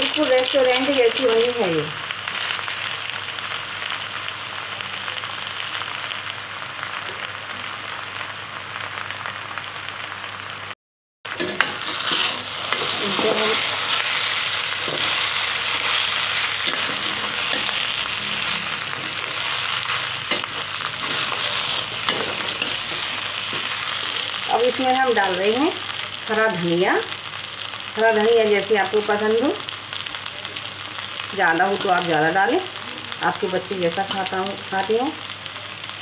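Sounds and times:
food sizzling in pan: 0:00.0 - 0:36.0
metal spatula scraping pan: 0:11.4 - 0:13.7.

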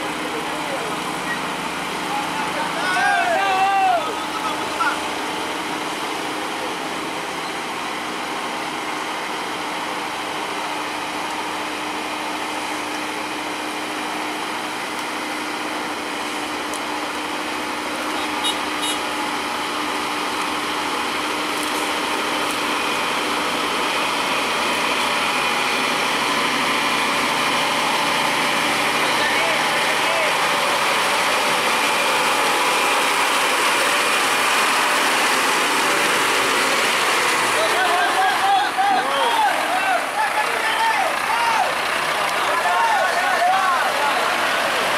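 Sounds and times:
truck diesel engine running: 0:00.0 - 0:44.9.

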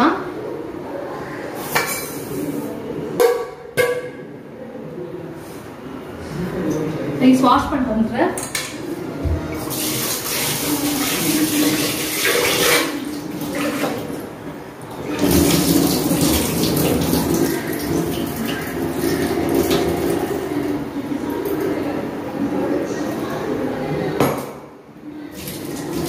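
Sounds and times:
kitchen tap running: 0:09.2 - 0:21.9, 0:25.3 - 0:26.0.

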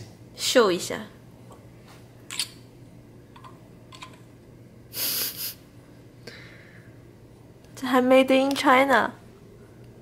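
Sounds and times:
short hissing rush: 0:04.9 - 0:05.6.

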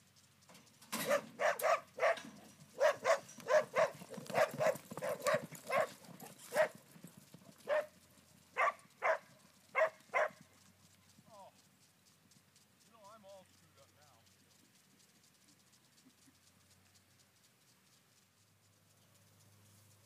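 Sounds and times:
horses galloping on dirt: 0:00.0 - 0:20.0
dog barking: 0:01.0 - 0:06.8, 0:07.6 - 0:08.0, 0:08.6 - 0:10.4.

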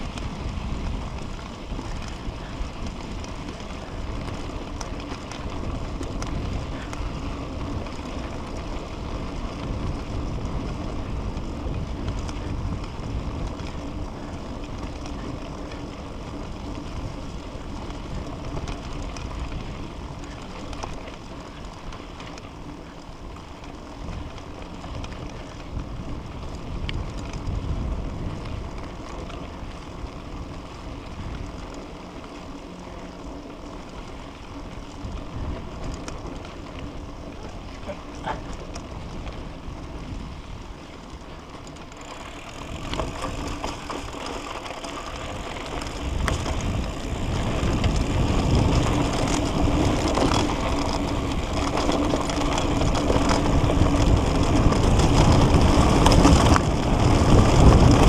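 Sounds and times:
bike rattling over bumps: 0:00.0 - 0:58.0
tyres rolling on dirt trail: 0:00.0 - 0:58.0
wind on microphone: 0:24.0 - 0:31.6, 0:45.0 - 0:58.0.

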